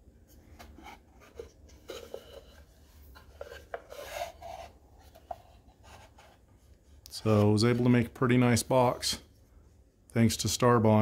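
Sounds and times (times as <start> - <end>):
hands rubbing wooden box: 0.5 - 6.6.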